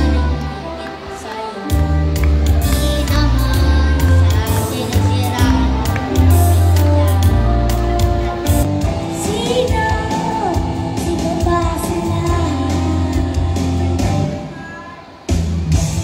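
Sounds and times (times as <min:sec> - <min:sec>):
boy singing into a microphone: 0:00.0 - 0:07.7, 0:09.2 - 0:15.0
amplified backing track: 0:00.0 - 0:16.0.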